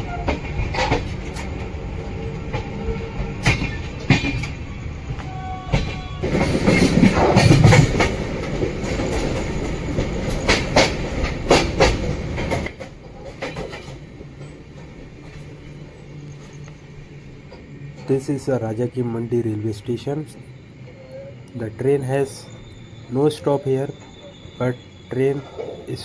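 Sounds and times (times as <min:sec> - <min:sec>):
train rumbling along track: 0:00.0 - 0:26.0
wheels clicking over rail joints: 0:00.0 - 0:26.0.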